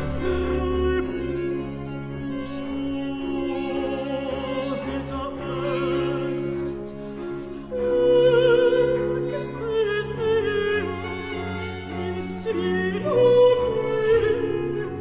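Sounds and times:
sustained bowed strings: 0.0s - 15.0s.

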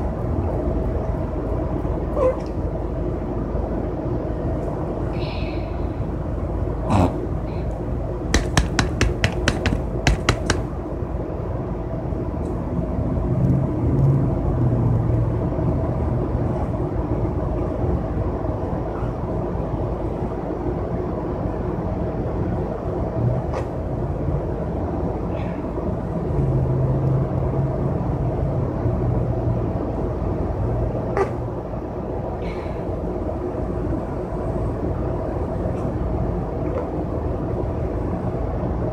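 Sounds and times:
vehicle cabin rumble: 1.5s - 11.4s.

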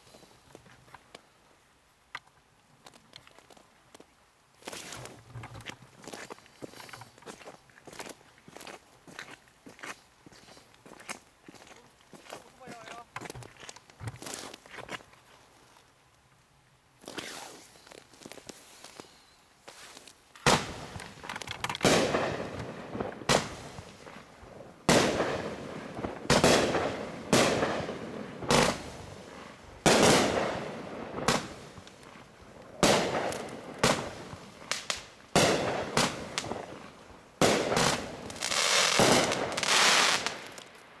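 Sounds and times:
firework bangs: 20.4s - 41.0s
firework hissing: 26.3s - 32.1s, 37.5s - 40.7s.

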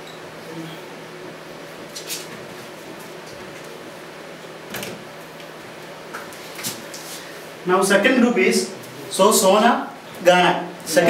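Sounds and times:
steady room hiss: 0.0s - 11.0s.

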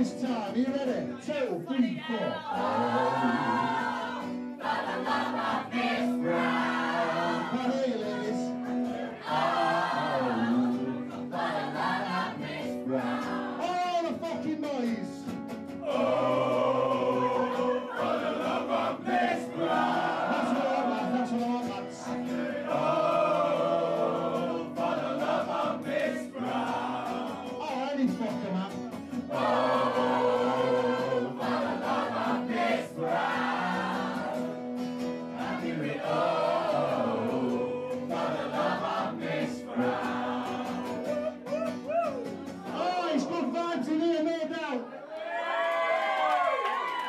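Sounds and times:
crowd singing along: 2.0s - 13.8s, 15.7s - 27.9s, 29.1s - 41.5s
acoustic guitar strumming: 2.4s - 43.9s
man singing into microphone: 6.1s - 8.6s.

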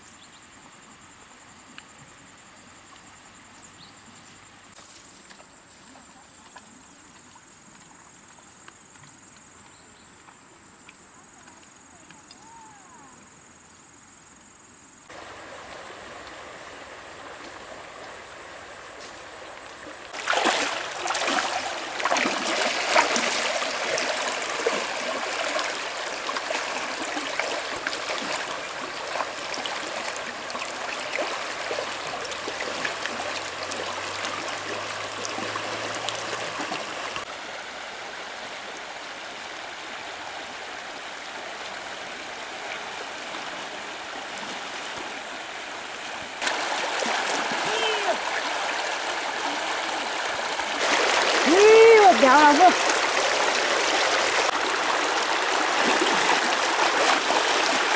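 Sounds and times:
stream rushing over stones: 15.0s - 57.9s
person wading and splashing: 18.6s - 37.2s, 46.4s - 57.9s.

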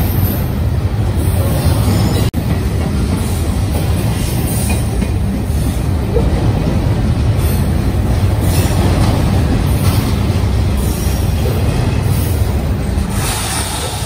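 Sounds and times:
steel wheels rumbling on rail: 0.0s - 14.0s
brief high hisses: 13.1s - 14.0s.

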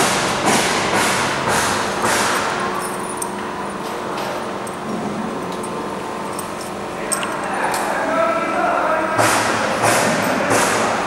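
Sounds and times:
conveyor belt motor hum: 0.0s - 11.0s.

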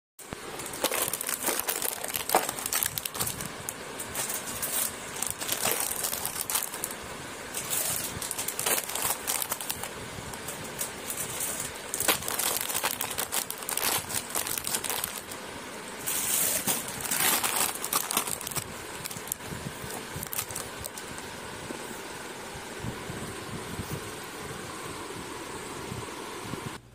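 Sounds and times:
plastic packets crinkling: 0.4s - 15.4s, 16.0s - 21.2s.

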